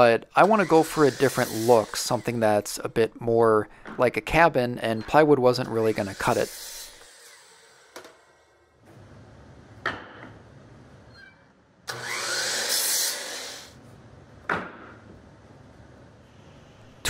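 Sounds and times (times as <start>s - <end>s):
miter saw cutting wood: 0.3s - 2.8s, 5.6s - 8.4s, 11.9s - 13.8s.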